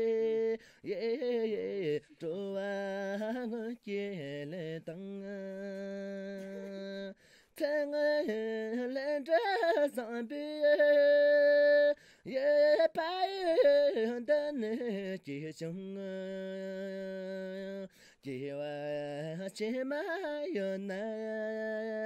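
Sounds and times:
singer breathing: 0:00.6 - 0:00.9, 0:07.1 - 0:07.6, 0:12.0 - 0:12.3, 0:17.9 - 0:18.2.

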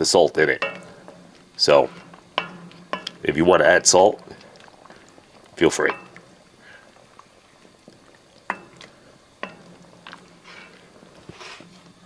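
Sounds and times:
faint simmer: 0:00.0 - 0:12.0
wooden spoon stirring thick food: 0:00.0 - 0:12.0
spoon knocking against pot: 0:00.6 - 0:03.3, 0:05.8 - 0:06.3, 0:08.5 - 0:10.2.

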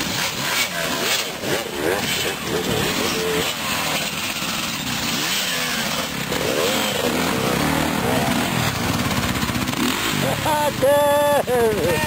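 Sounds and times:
dirt bike engines revving: 0:00.0 - 0:12.0.

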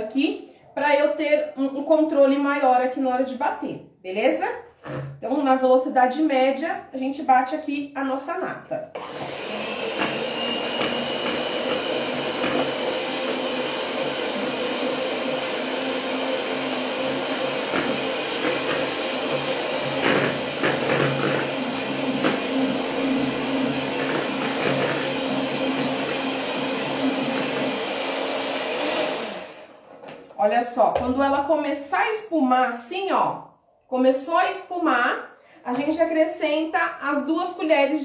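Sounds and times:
electric hand mixer running: 0:08.9 - 0:29.9.

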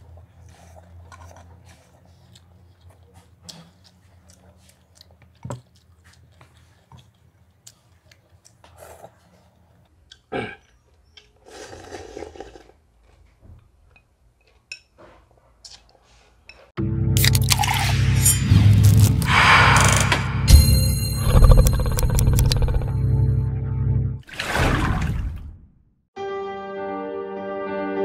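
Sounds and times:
chewing and slurping noodles: 0:00.0 - 0:13.4.

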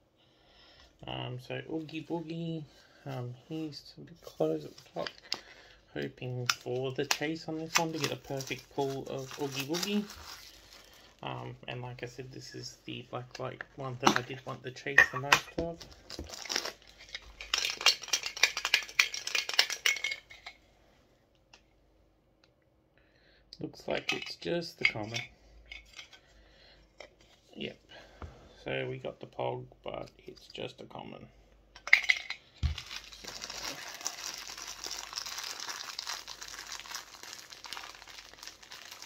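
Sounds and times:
plastic bag crinkling: 0:06.6 - 0:11.4, 0:15.5 - 0:20.3, 0:32.6 - 0:39.0
contents rattling inside can: 0:16.2 - 0:20.5, 0:31.9 - 0:39.0.

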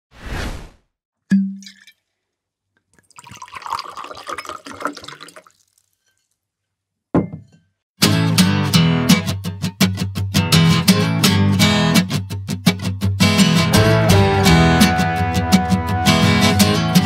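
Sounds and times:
strummed acoustic guitar music: 0:08.0 - 0:17.0.

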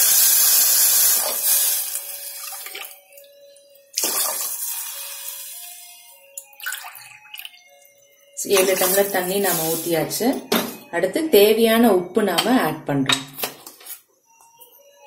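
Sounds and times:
water pouring into a metal pot: 0:00.1 - 0:03.0, 0:04.0 - 0:05.7, 0:08.5 - 0:09.9.

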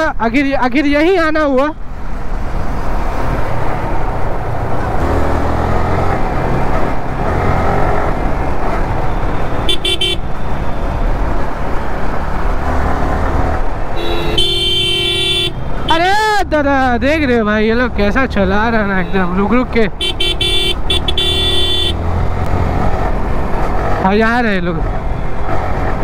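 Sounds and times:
vehicle horn honking: 0:09.1 - 0:10.8, 0:14.0 - 0:15.6, 0:20.0 - 0:22.0.

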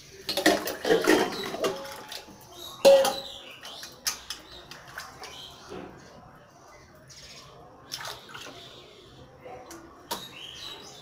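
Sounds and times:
steel utensils clattering: 0:00.2 - 0:03.4.

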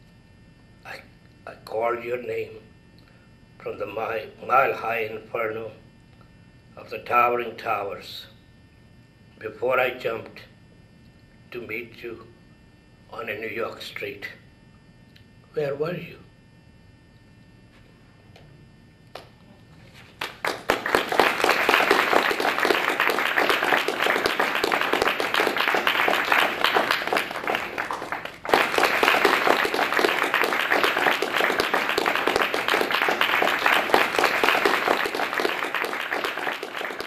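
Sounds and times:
audience applauding: 0:20.2 - 0:37.0.

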